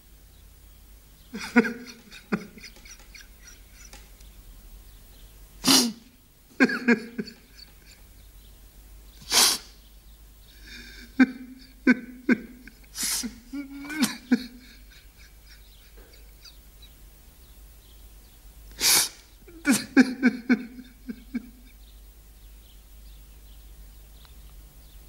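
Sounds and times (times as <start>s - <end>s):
man sobbing: 1.3s - 4.0s, 6.6s - 8.0s, 10.6s - 16.6s, 19.4s - 21.7s
loud gasping breaths: 10.5s - 11.2s, 12.9s - 14.9s.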